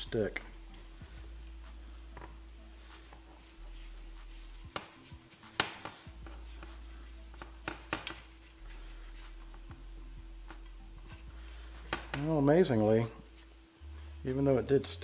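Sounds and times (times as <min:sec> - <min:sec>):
spatula scraping cast iron skillet: 0:00.3 - 0:09.7.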